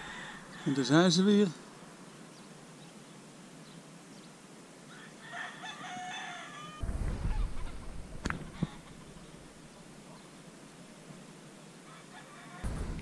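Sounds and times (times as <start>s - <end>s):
rooster crowing: 0.0s - 1.0s, 4.9s - 7.7s, 11.9s - 12.9s
low rumble: 12.7s - 13.0s.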